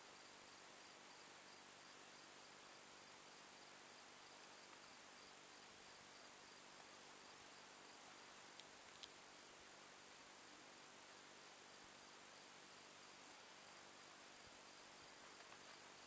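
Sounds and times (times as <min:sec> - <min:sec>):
faint hiss: 0:00.0 - 0:16.0
faint click: 0:08.5 - 0:09.2.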